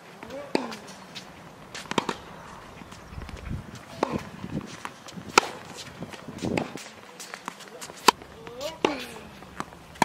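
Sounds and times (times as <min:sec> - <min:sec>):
footsteps on court: 0:00.0 - 0:10.0.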